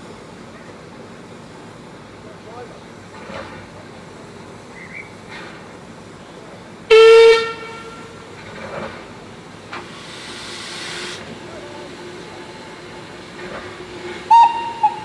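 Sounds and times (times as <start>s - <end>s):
steam locomotive whistle: 6.9s - 8.2s, 13.6s - 15.0s
steam hissing from drain cocks: 9.0s - 15.0s.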